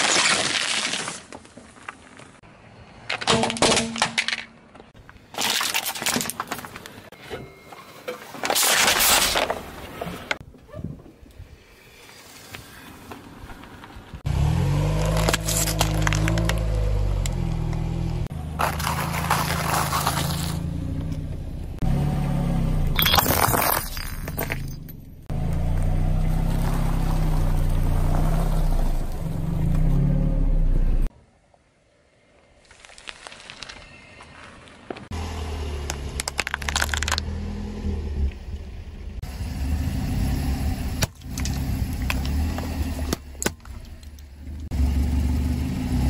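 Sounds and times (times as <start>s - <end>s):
tyre crushing crunchy food: 18.6s - 20.6s.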